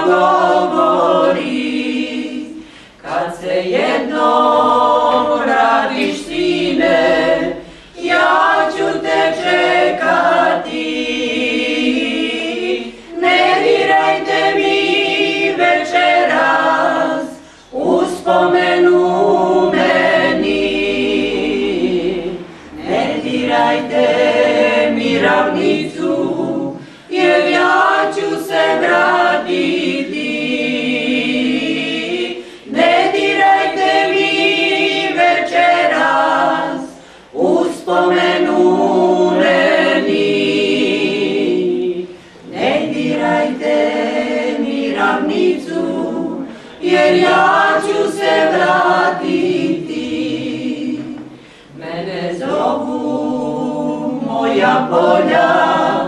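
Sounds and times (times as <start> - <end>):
women singing a cappella in harmony: 0.0 - 56.0.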